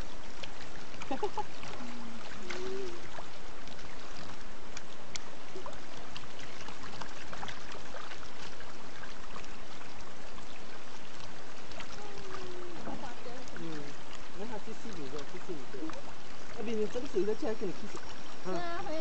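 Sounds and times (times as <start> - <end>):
fish splashing at water surface: 0.0 - 18.8
small sharp splashes: 0.0 - 18.8.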